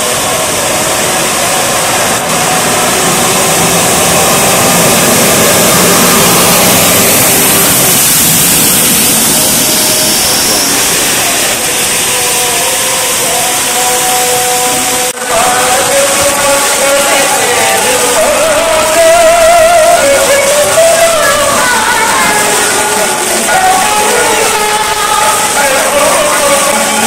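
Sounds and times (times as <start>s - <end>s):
bus engine: 0.0s - 27.0s
heavy rain hissing: 0.0s - 27.0s
water spraying from bus: 0.0s - 27.0s.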